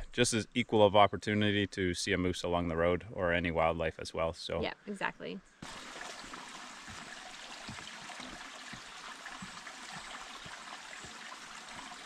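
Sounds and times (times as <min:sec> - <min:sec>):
brook trickling: 0:05.6 - 0:12.0
footsteps on wooden planks: 0:06.8 - 0:12.0.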